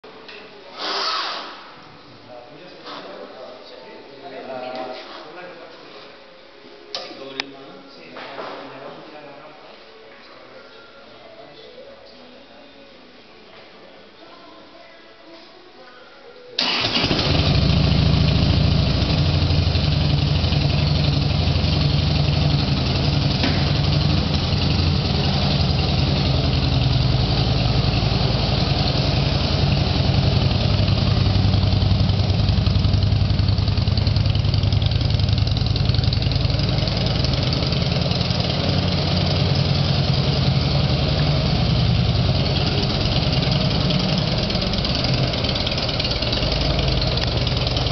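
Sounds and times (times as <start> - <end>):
motorcycle engine idling: 16.6 - 47.9.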